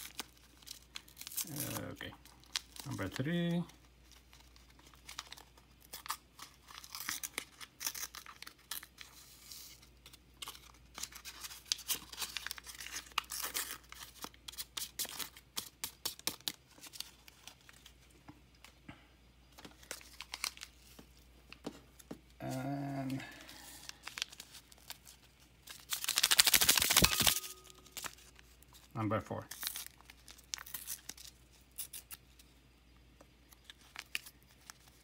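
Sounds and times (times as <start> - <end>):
paper sachet crinkling: 0.0 - 18.1, 19.5 - 21.2, 22.4 - 32.5, 33.4 - 35.0.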